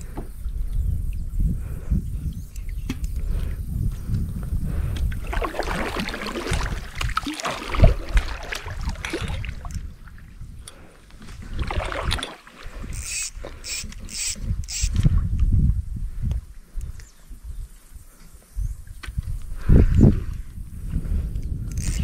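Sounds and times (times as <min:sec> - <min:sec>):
wind rumble on microphone: 0:00.0 - 0:22.0
water sloshing against kayak: 0:04.8 - 0:14.7.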